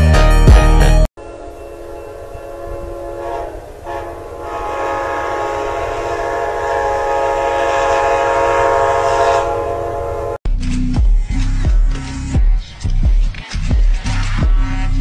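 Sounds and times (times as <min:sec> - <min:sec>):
thumping music beat: 0:00.0 - 0:01.1, 0:10.9 - 0:15.0
locomotive air horn blast: 0:01.4 - 0:10.4.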